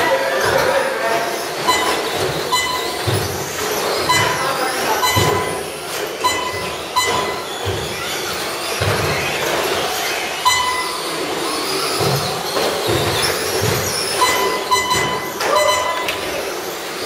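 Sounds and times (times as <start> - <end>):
rc truck motors whining: 0.3 - 17.0
short beeps: 1.6 - 3.2, 4.0 - 7.7, 10.4 - 11.2, 14.2 - 16.3.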